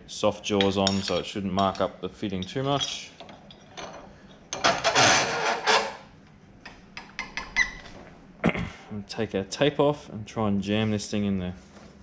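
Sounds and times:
vise rasping scrape: 4.6 - 6.1.

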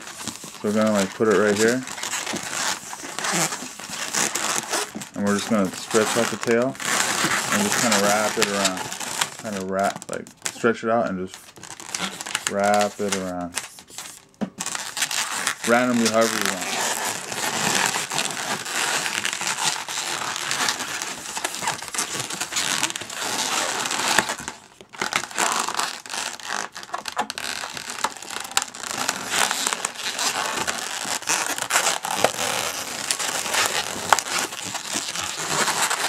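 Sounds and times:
balloons rubbing and crackling: 0.0 - 36.0.

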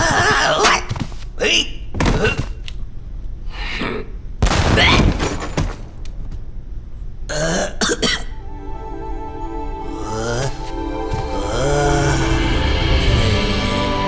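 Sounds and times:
music holding steady notes: 8.3 - 14.0.

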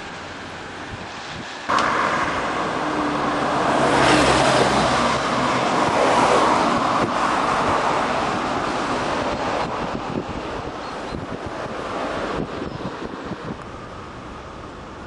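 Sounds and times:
wind on microphone: 0.6 - 15.0
vehicle passing by: 1.7 - 9.4.

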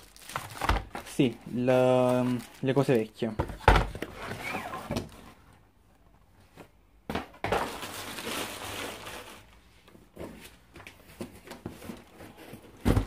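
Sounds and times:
plastic bag crinkling: 0.0 - 3.2, 7.6 - 9.6.

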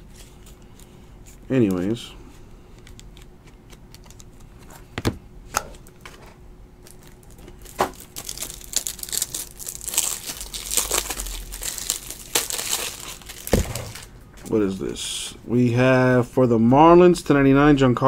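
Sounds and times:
plastic packaging crinkling: 6.8 - 14.2.

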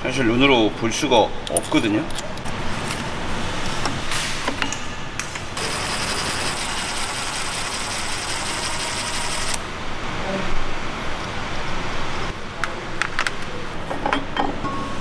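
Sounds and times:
power driver running: 5.6 - 9.7.

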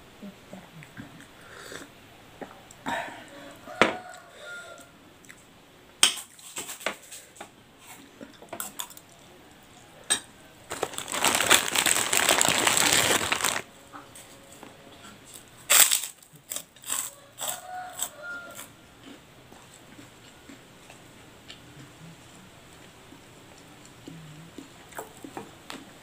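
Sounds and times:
crunching: 10.7 - 13.7, 15.3 - 19.2.

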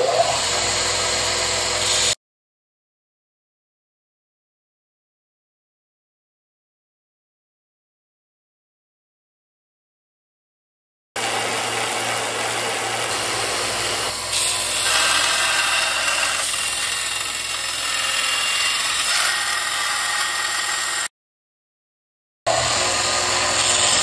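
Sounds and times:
belt sander grinding metal: 11.2 - 21.1, 22.5 - 24.0.

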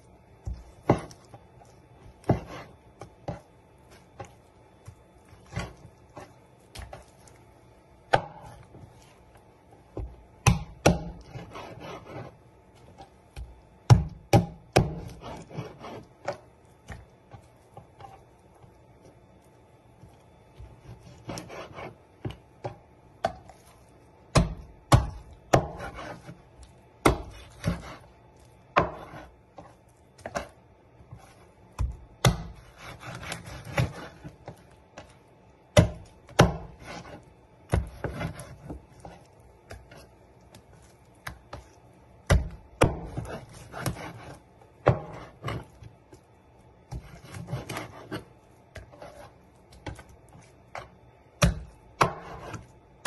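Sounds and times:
scraping and handling meat: 0.0 - 53.0
cleaver chopping on cutting board: 13.9 - 16.4, 31.8 - 34.3, 35.8 - 38.8.

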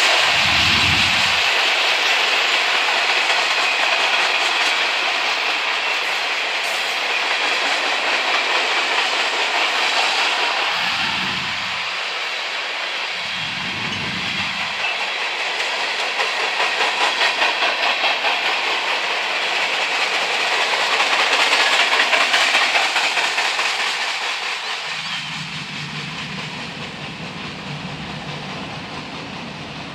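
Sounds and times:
freight cars rolling on rails: 0.0 - 29.9
wheels clacking over rail joints: 13.2 - 29.9.

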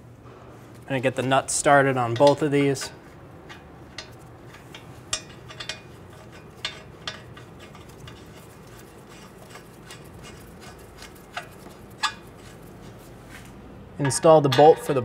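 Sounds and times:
metal nuts clinking: 2.0 - 13.0, 14.0 - 15.0.

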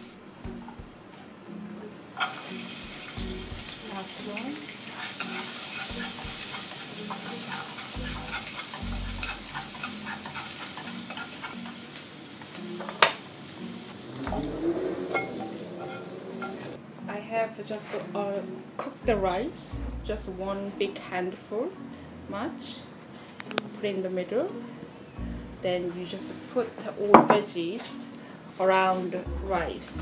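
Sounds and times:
peppers sizzling in a wok: 0.0 - 16.8
chopsticks clicking against a pan: 4.6 - 13.2.

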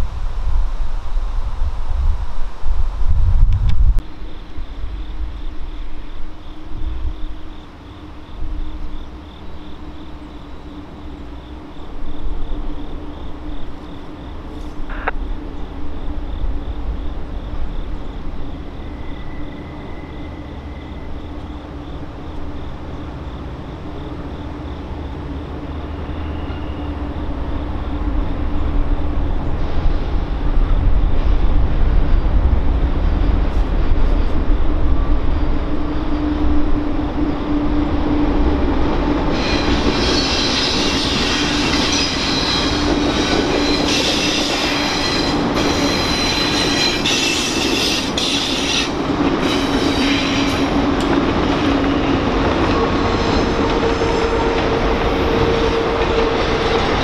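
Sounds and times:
freight train locomotives rumbling: 0.0 - 57.0.

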